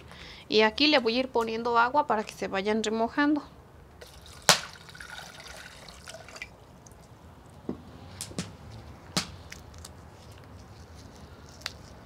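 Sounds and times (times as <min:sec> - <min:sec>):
water trickling into a pot: 0:04.0 - 0:07.0
dried chiles cracking: 0:08.2 - 0:12.0.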